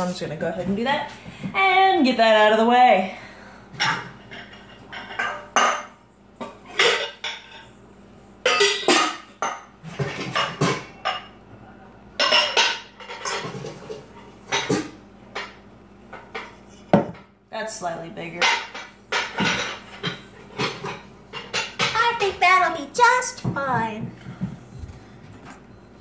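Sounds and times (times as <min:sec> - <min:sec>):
metal bowls and pans clanking: 0:03.7 - 0:07.8, 0:08.4 - 0:11.4, 0:12.2 - 0:17.3, 0:18.4 - 0:22.2.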